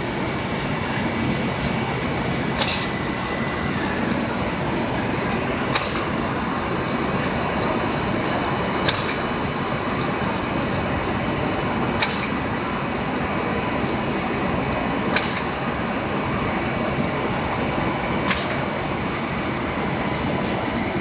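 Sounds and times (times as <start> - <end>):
machine running steadily: 0.0 - 21.0.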